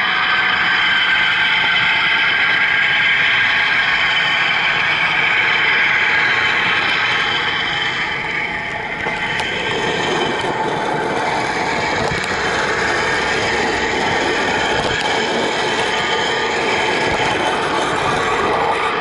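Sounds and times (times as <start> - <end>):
model train running on track: 0.0 - 19.0.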